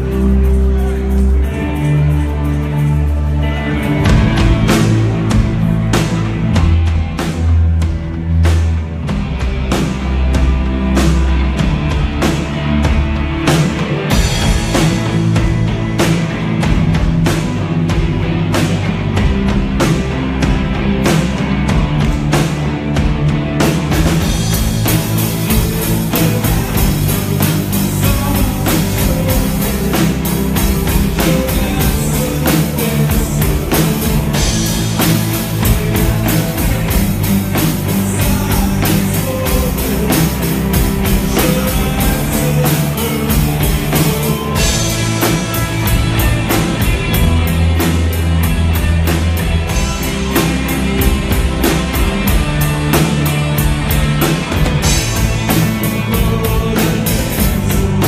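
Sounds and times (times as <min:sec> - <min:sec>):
bass guitar: 0:00.0 - 0:58.0
drum kit: 0:00.0 - 0:58.0
electric guitars: 0:00.0 - 0:58.0.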